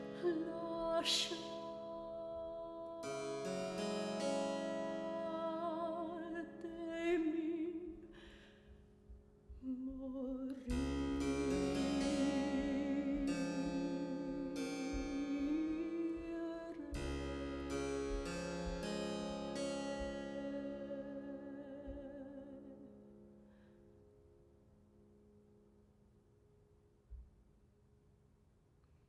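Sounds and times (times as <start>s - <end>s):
harpsichord chords: 0.0s - 7.8s, 10.7s - 22.2s
soprano singing: 0.0s - 8.4s, 9.5s - 23.0s.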